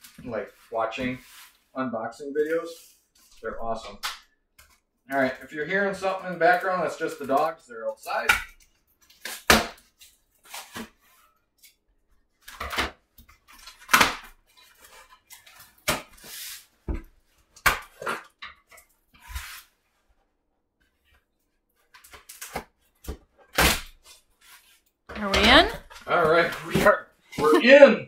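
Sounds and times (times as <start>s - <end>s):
cardboard and tape tearing: 9.0s - 11.2s, 19.1s - 19.7s, 22.0s - 24.8s.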